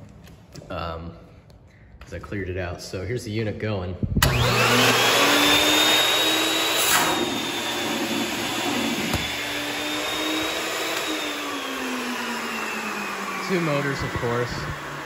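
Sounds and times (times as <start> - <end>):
vacuum motors whining: 4.2 - 15.0.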